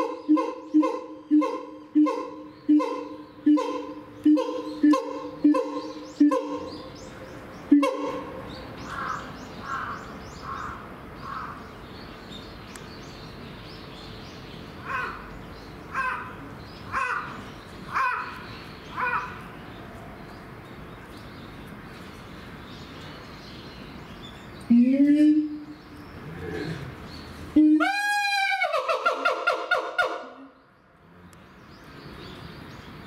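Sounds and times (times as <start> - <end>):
siamang calling: 0.0 - 10.0, 24.7 - 30.6.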